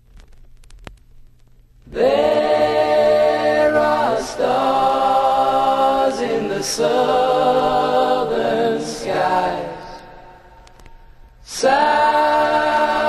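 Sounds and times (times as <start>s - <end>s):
faint hiss: 0.0s - 13.0s
voices singing in harmony: 1.9s - 10.6s, 11.4s - 13.0s
clicks: 10.6s - 11.0s.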